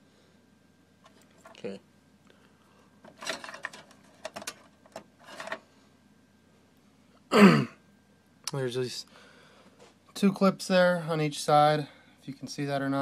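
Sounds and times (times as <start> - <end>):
man clearing throat: 7.3 - 7.8.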